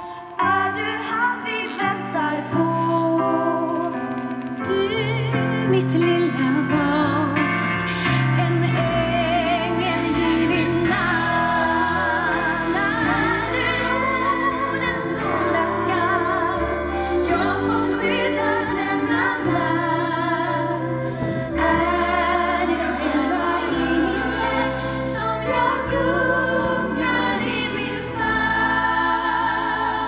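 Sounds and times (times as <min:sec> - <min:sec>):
choir and band: 0:07.0 - 0:30.0.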